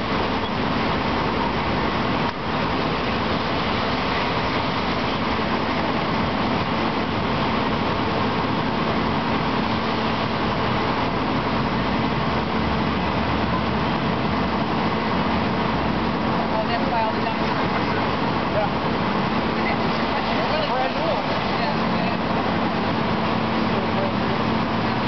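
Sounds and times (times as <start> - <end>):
fire truck engines rumbling: 0.0 - 25.0.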